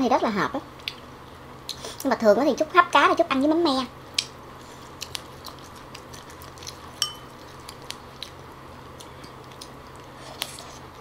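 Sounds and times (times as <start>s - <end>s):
quiet chewing: 4.2s - 11.0s
chopsticks clinking against dish: 7.0s - 7.4s.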